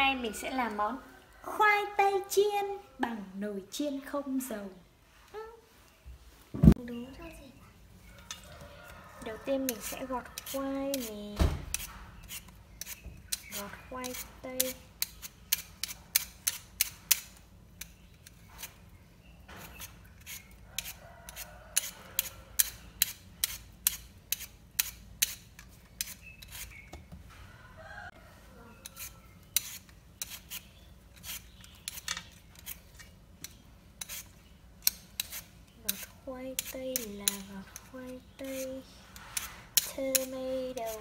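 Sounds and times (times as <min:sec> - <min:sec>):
peeler scraping potatoes: 0:08.3 - 0:27.0, 0:28.7 - 0:41.0.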